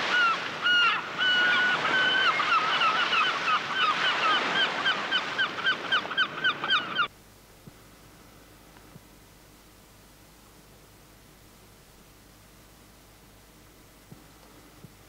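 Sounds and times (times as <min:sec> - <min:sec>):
geese honking: 0:00.0 - 0:07.1.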